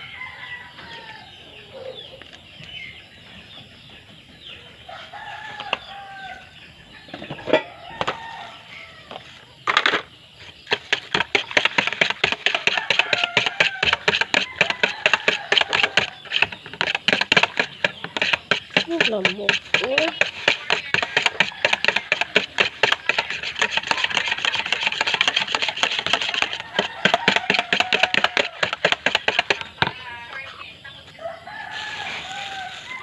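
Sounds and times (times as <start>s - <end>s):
chickens clucking: 0.0s - 33.0s
eggs beaten in plastic bowl: 10.7s - 30.0s.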